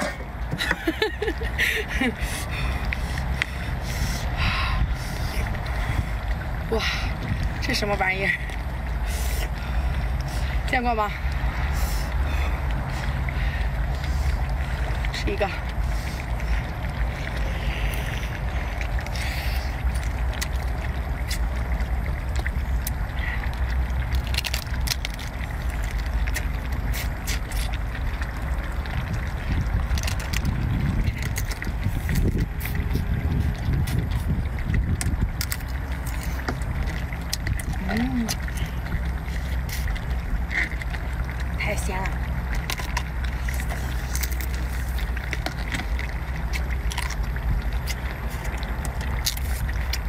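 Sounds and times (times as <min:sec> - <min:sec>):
steady low rumble: 0:00.0 - 0:50.0
wind on microphone: 0:00.0 - 0:50.0
wet eating and sucking: 0:01.5 - 0:50.0
crab shell cracking: 0:18.8 - 0:33.0, 0:33.6 - 0:50.0.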